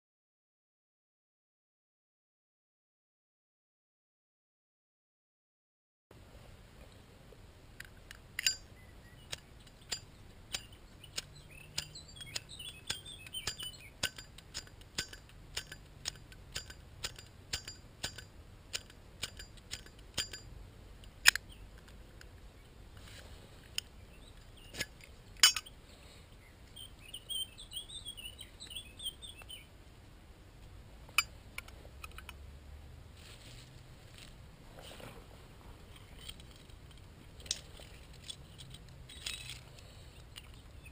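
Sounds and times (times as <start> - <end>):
small birds chirping: 8.0 - 18.1, 21.2 - 29.8, 37.2 - 40.9.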